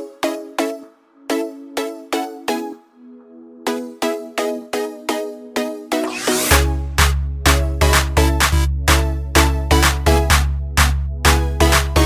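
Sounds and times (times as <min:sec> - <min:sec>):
electronic music with struck notes: 0:00.0 - 0:12.0.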